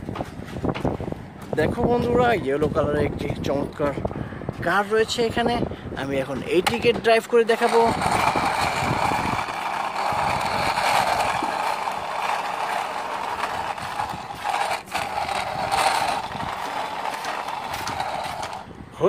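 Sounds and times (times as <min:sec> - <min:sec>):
wheels rolling on concrete: 0:00.0 - 0:19.0
toy car gears whirring: 0:06.6 - 0:18.8.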